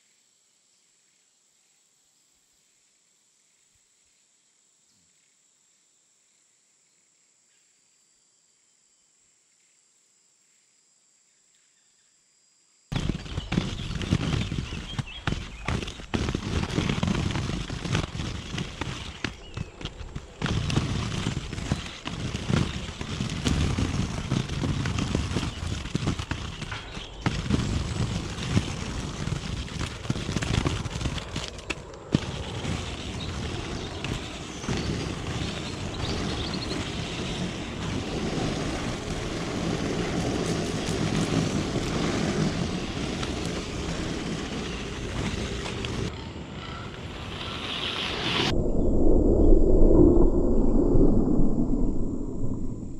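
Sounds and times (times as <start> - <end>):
skate wheels crunching on gravel: 12.9 - 46.1, 47.0 - 48.5
skate wheels rumbling on tarmac: 12.9 - 48.5.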